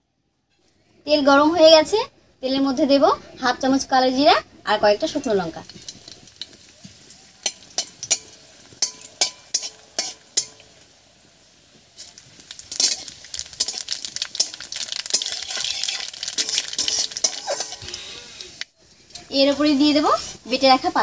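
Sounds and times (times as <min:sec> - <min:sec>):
seeds crackling and sizzling in oil: 0:00.5 - 0:21.0
chillies popping in hot oil: 0:04.3 - 0:21.0.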